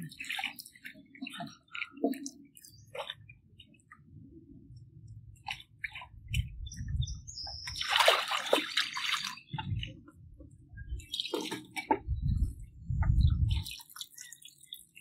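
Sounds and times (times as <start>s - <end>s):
water splashing in bucket: 0.0s - 2.3s, 7.7s - 9.6s
low dull bumps: 9.6s - 13.6s.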